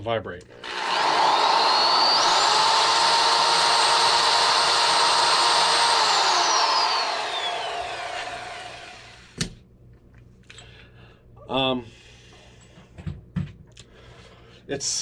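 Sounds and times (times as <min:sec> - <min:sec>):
electric drill running: 0:00.6 - 0:09.4.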